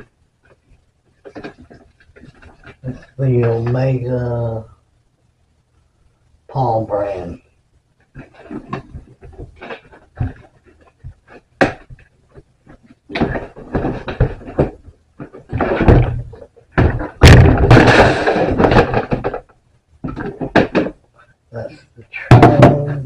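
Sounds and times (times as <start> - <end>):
plastic litter box knocking: 8.2 - 21.0.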